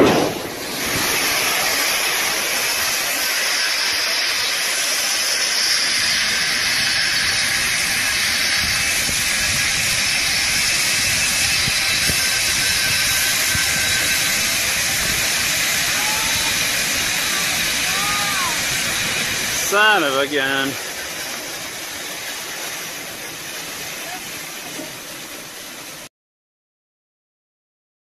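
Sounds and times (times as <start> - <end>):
crash: 0.0 - 4.5
grain pouring rushing hiss: 0.0 - 26.1.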